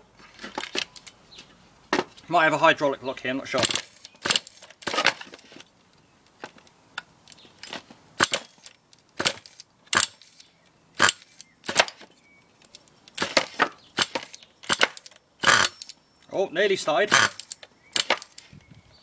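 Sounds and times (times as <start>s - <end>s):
small engine sputtering being cranked: 13.2s - 15.9s, 17.1s - 18.4s.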